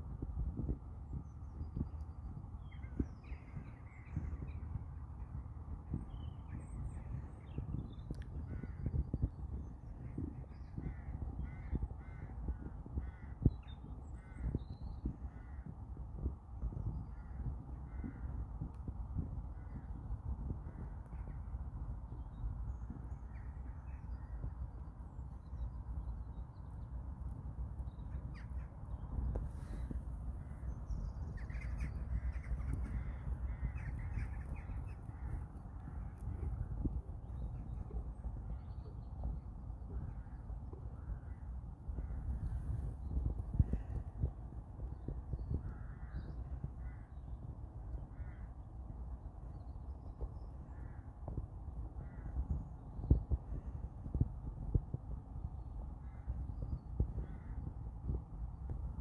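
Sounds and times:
wind rumble on microphone: 0.0s - 59.0s
crows cawing: 31.4s - 36.2s.

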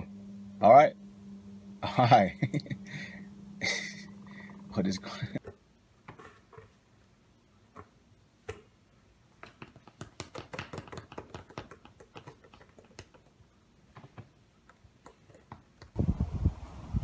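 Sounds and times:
low steady rumble: 0.0s - 5.4s
fingers tapping on basketball: 9.4s - 13.4s.

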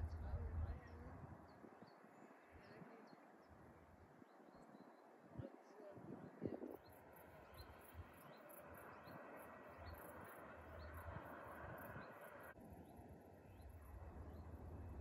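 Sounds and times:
low rumble: 0.0s - 1.4s.

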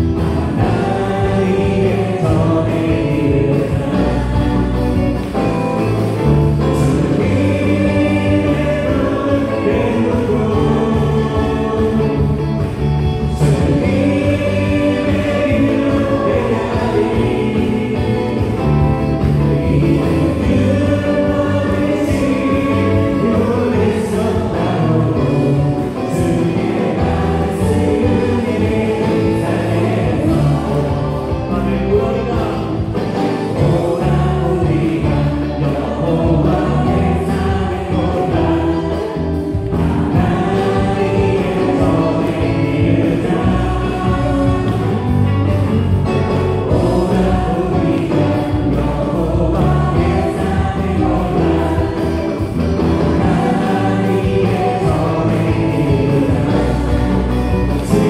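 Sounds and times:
drums: 0.0s - 58.0s
electric bass: 0.0s - 58.0s
group of singers: 0.0s - 58.0s
keyboard: 0.0s - 58.0s.

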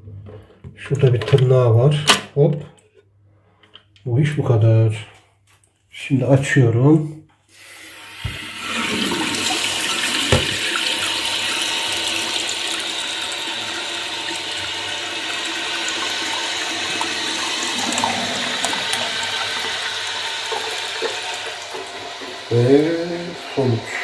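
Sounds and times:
water hissing into cistern: 7.5s - 24.0s.

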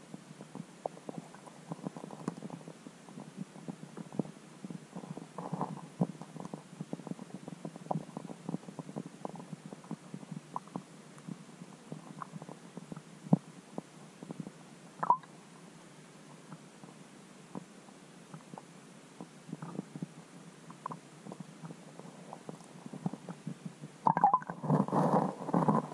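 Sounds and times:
muffled underwater clicks and pops: 15.0s - 15.3s, 22.6s - 25.9s.

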